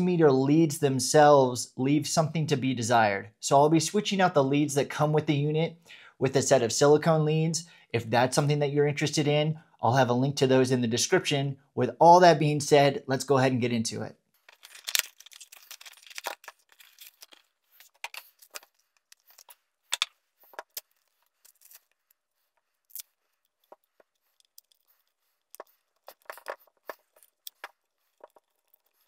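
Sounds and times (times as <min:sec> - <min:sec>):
packaging crinkling and ripping: 0:14.4 - 0:19.6, 0:20.6 - 0:22.0.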